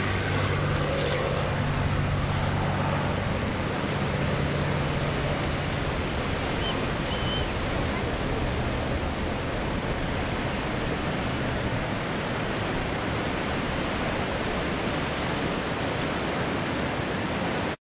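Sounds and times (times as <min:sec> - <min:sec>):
distant aircraft engine drone: 0:00.0 - 0:17.8
strong wind: 0:00.0 - 0:17.8
surf: 0:00.0 - 0:17.8.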